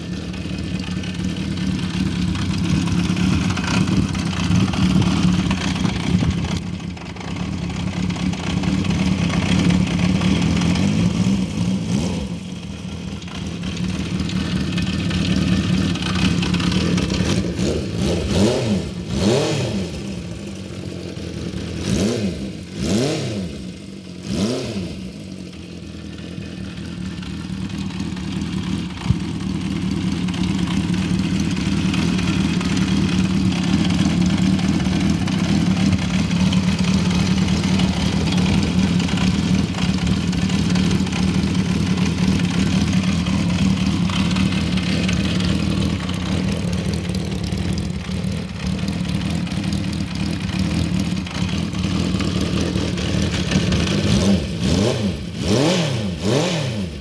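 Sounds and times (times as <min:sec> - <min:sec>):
motorcycle engine idling: 0:00.0 - 0:57.0.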